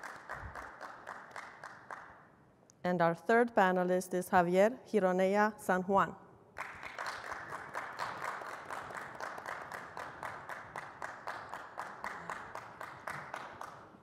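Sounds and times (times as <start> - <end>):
audience applause: 0.0 - 2.0, 6.6 - 13.8.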